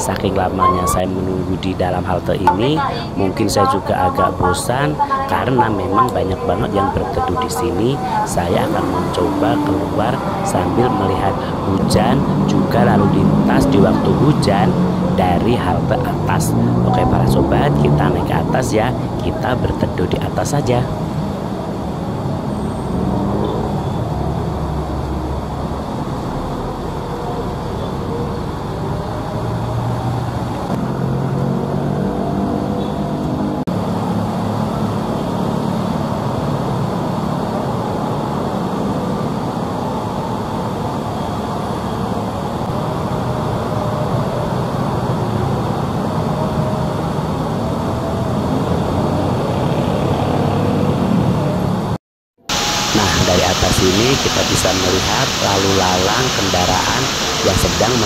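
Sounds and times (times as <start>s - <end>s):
passing engines drone: 0.0s - 58.0s
heavy rain: 52.5s - 58.0s.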